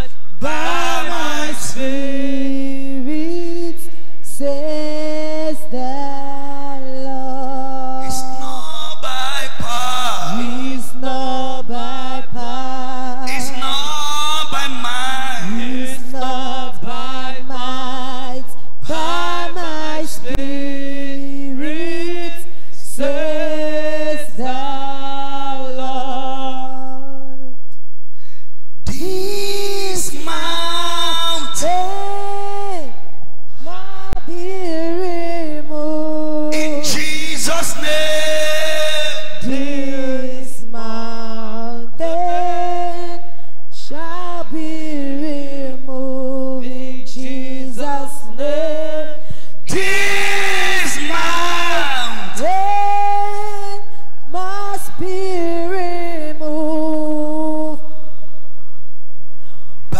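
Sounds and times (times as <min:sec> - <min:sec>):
man singing unaccompanied: 0:34.4 - 0:40.6.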